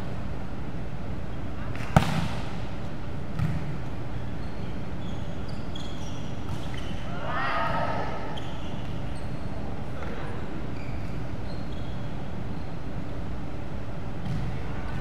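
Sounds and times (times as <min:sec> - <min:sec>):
steady hall hum: 0:00.0 - 0:15.0
volleyball thump: 0:01.8 - 0:02.6, 0:03.3 - 0:03.8
shoes squeaking on floor: 0:04.2 - 0:07.1, 0:08.3 - 0:09.6, 0:10.7 - 0:12.8.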